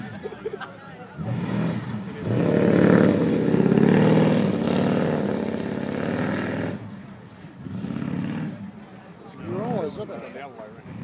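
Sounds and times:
truck engine revving hard: 1.2 - 6.9, 7.6 - 8.8.

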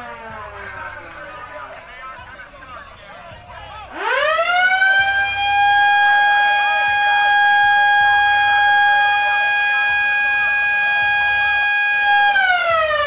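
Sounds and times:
police siren: 0.0 - 0.9, 3.9 - 13.0.

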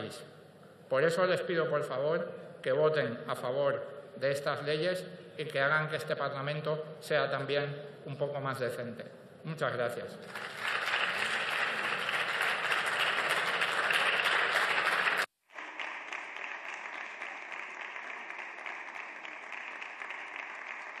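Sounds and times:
applause: 10.2 - 21.0.

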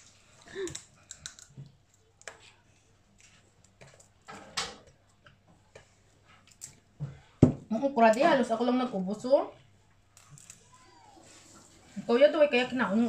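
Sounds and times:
shells cracking and clicking: 0.5 - 2.4.

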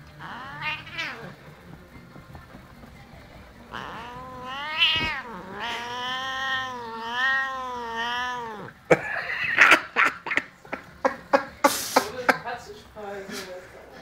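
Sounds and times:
cat yowling: 0.2 - 1.4, 3.7 - 10.0.

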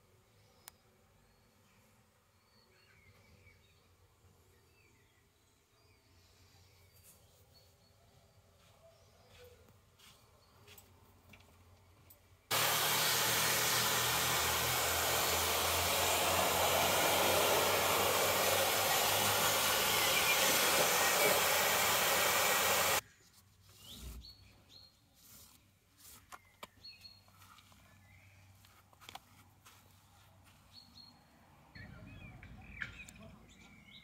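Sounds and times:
hot-air blower rushing air: 12.5 - 23.0.

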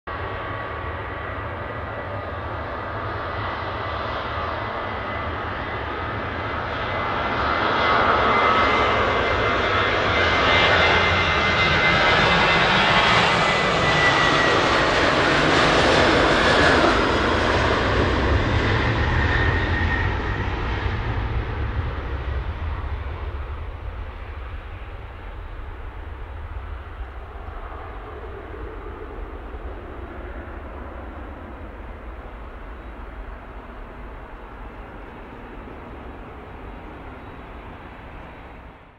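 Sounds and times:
jet engines at takeoff power: 0.1 - 38.9.

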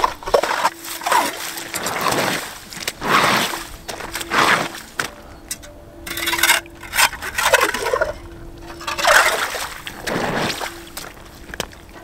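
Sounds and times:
water gushing and gurgling: 0.0 - 12.0.

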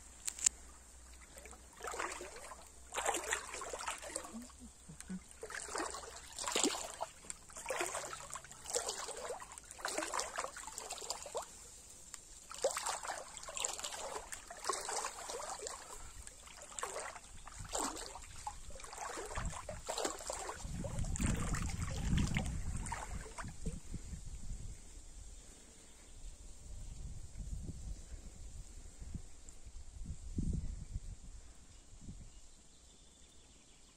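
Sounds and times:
river water splashing: 0.2 - 23.6.

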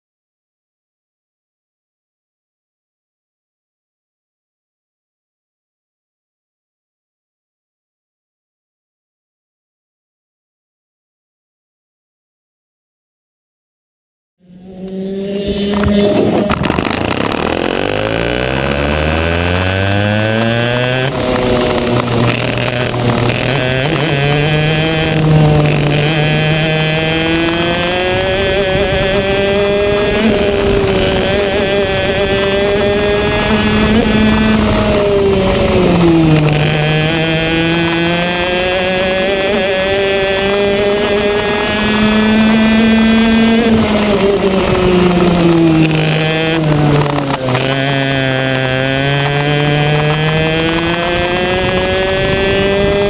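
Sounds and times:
kart engine revving: 14.4 - 53.0.

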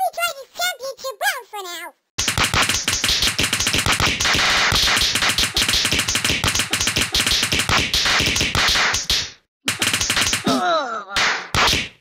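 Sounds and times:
rapid tapping and clicking: 2.2 - 10.5.

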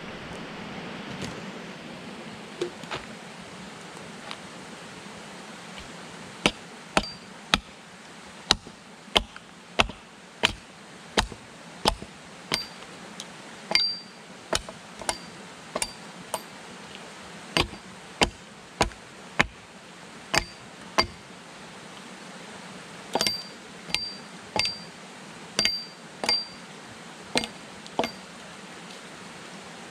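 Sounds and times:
hatchet knocking wooden pole: 6.5 - 7.7, 8.5 - 10.6, 11.2 - 12.8, 13.7 - 16.5, 17.6 - 19.6, 20.3 - 21.2, 23.2 - 24.9, 25.6 - 26.6, 27.4 - 28.2.

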